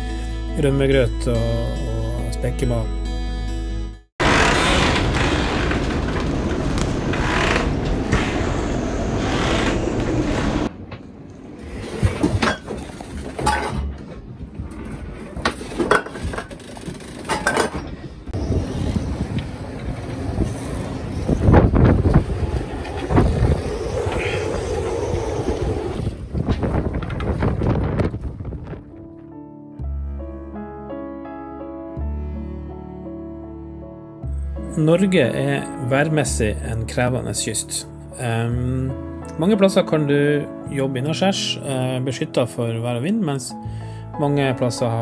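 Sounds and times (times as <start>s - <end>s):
clinks and clatter of items: 12.1s - 18.0s
wind buffeting microphone: 17.8s - 29.2s.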